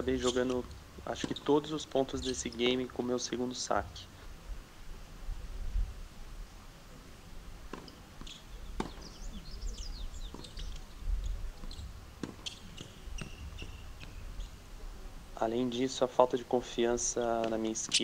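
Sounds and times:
birds chirping: 0.0 - 4.3, 7.8 - 14.7
tennis ball pops on racket: 7.7 - 9.1.

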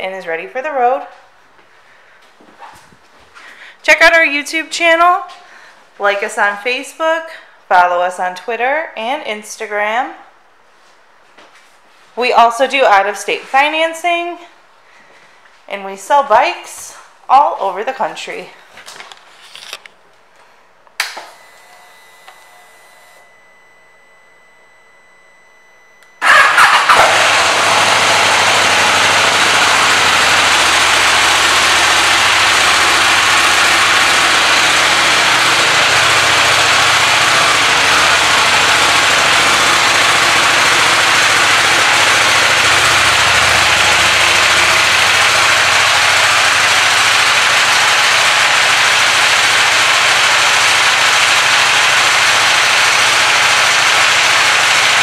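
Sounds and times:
motorcycle engine starting and idling: 26.2 - 55.0.

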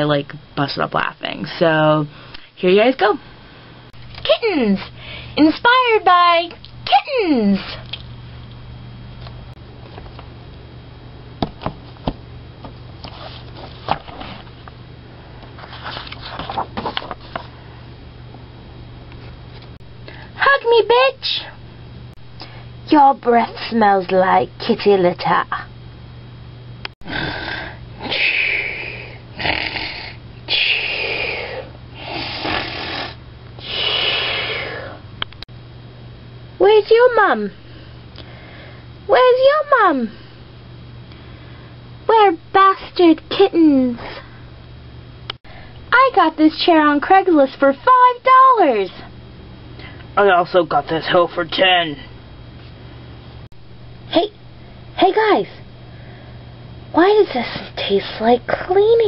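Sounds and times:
steady low hum: 0.0 - 59.0
book knocking on wooden table: 11.4 - 12.2
book pages rustling: 13.0 - 14.6, 15.6 - 17.5
person mock snoring: 27.1 - 35.0.

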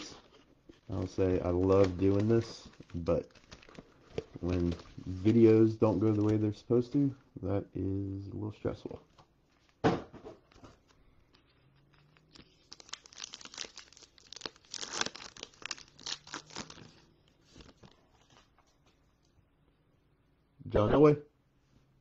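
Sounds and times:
foil wrapper tearing and crinkling: 0.9 - 5.4, 11.9 - 17.0.

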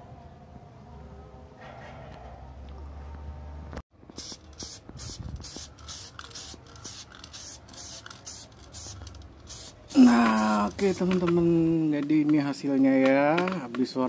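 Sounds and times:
spray paint can hissing bursts: 4.1 - 11.5.

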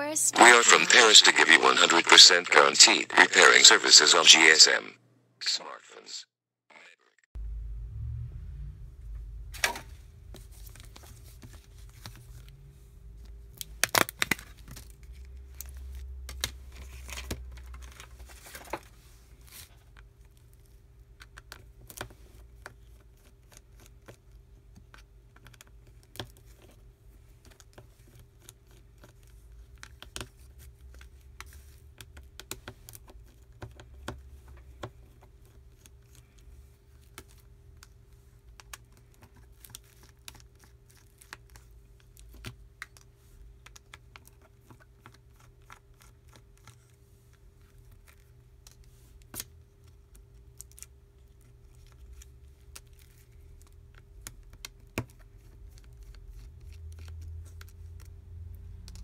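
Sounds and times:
faint steady hum: 0.0 - 16.9.

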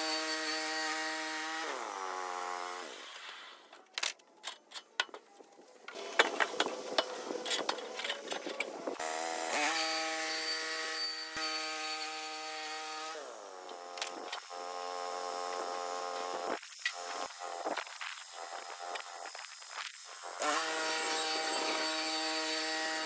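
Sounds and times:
band saw blade cutting wood: 0.0 - 3.5, 5.9 - 17.3, 20.4 - 23.0.

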